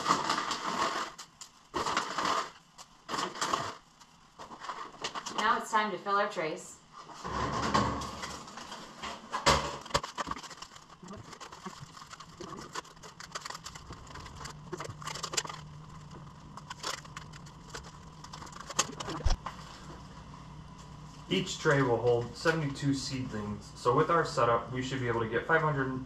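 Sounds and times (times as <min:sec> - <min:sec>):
plastic trays clicking and scraping: 0:00.0 - 0:05.4, 0:07.3 - 0:19.4
soil rustling: 0:09.8 - 0:19.8.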